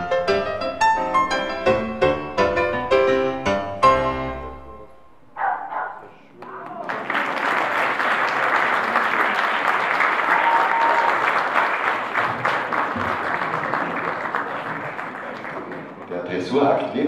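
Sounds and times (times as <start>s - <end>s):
audience applauding: 6.1s - 16.9s.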